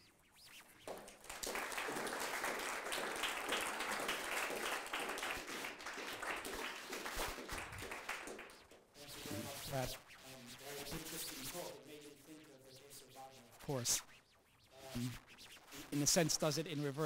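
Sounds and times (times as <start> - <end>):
audience applauding: 0.9 - 8.7.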